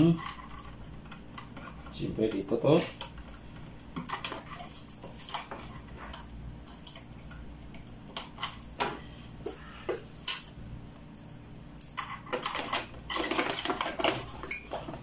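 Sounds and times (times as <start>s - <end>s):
plastic parts clicking and knocking: 11.8s - 15.0s.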